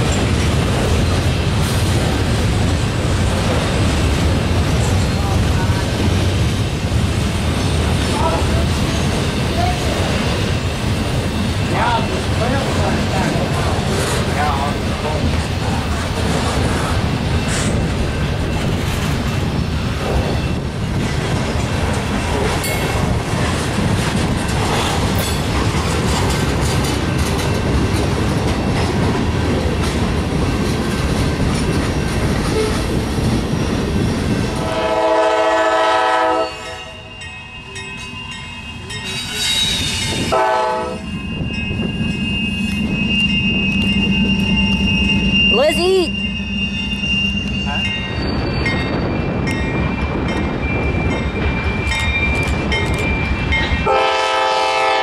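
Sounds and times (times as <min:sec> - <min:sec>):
train wheels clattering: 0:00.0 - 0:35.8
locomotive horn: 0:34.6 - 0:37.1, 0:40.3 - 0:41.1, 0:53.8 - 0:55.0.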